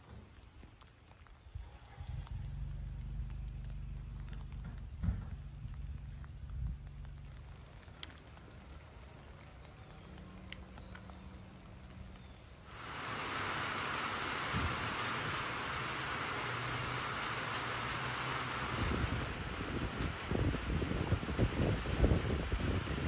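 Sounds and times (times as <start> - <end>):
rain drips: 0.0 - 23.0
steady hiss of rain: 0.0 - 23.0
low thuds: 2.3 - 7.5.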